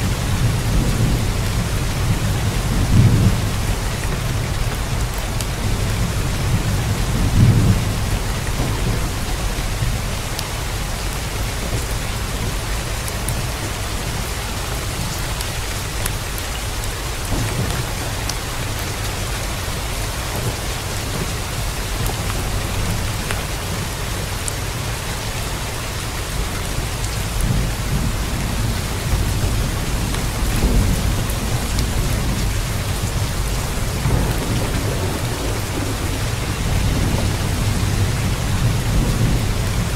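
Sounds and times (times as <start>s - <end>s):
heavy rain: 0.0s - 39.9s
thunder rumbling: 27.3s - 39.9s.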